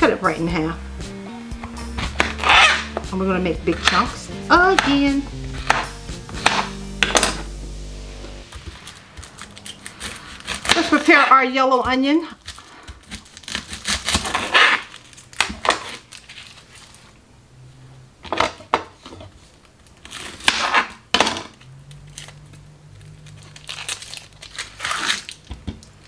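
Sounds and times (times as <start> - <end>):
onion skin crackling and tearing: 8.5 - 11.2, 12.3 - 17.1, 19.5 - 26.0.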